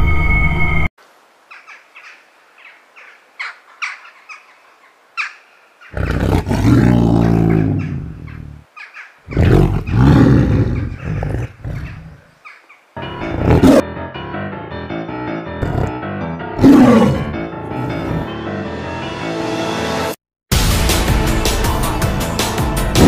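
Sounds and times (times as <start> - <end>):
tiger roaring: 5.9 - 8.6, 9.3 - 12.2, 13.2 - 13.8, 15.6 - 16.0, 16.6 - 18.4.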